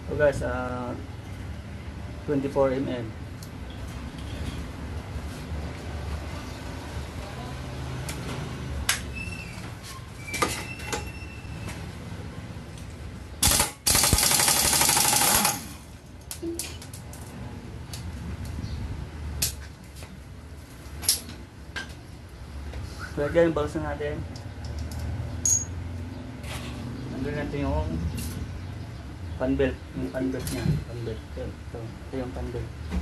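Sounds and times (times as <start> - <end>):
metal tools clicking and clanking: 24.3 - 25.8.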